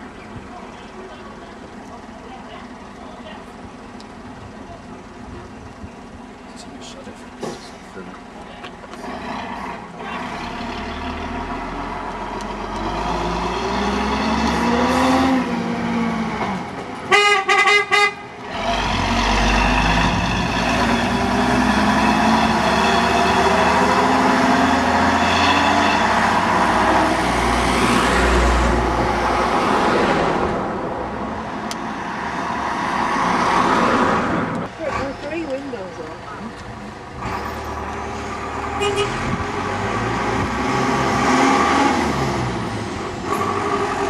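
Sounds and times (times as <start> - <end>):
diesel bus engine driving past: 0.0 - 17.1, 18.1 - 44.0
horn tooting: 17.1 - 18.3, 38.8 - 39.4.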